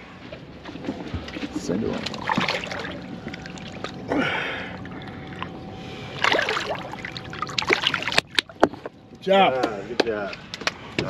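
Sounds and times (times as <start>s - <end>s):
faint steady hum: 0.0s - 11.0s
water splashing against boat: 0.4s - 4.1s, 4.9s - 8.8s.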